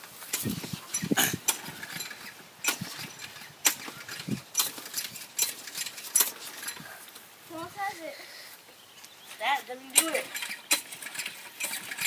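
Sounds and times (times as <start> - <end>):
lawn mower engine turning over: 0.0 - 7.9, 8.7 - 12.0
recoil starter cord yanks: 0.3 - 7.0, 9.9 - 12.0.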